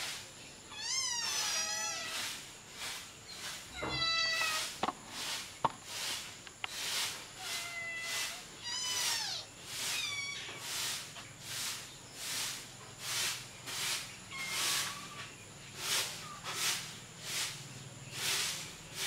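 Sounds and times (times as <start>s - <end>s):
soft pulsing hiss: 0.0s - 19.0s
kittens mewing: 0.7s - 2.3s, 3.7s - 4.8s, 7.4s - 10.6s, 14.3s - 15.3s.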